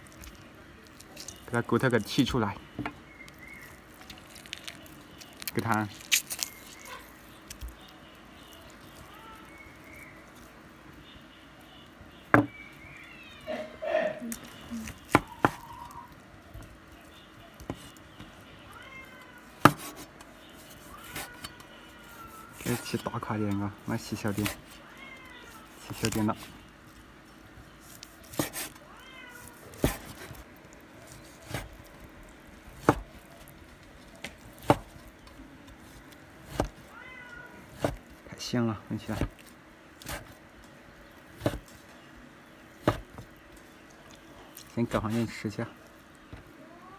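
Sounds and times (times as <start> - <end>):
cleaver chopping on wooden board: 28.3 - 28.7.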